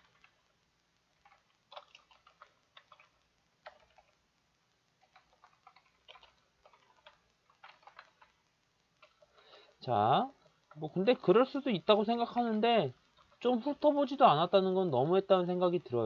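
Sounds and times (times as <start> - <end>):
keyboard typing clicks: 1.2 - 4.2, 5.0 - 8.4.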